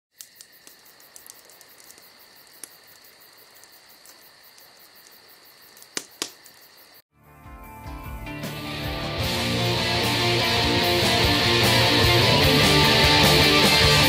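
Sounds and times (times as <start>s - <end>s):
sharp clicks: 0.2s - 3.0s, 3.6s - 6.7s
high-pitched insect chirring: 0.2s - 7.0s.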